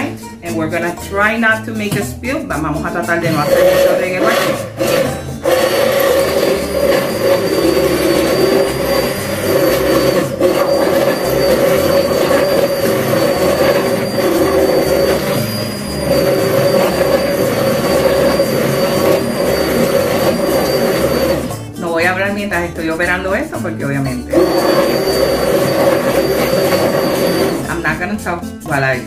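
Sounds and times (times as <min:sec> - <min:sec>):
hand blender motor humming: 0:03.2 - 0:21.6, 0:24.3 - 0:27.8.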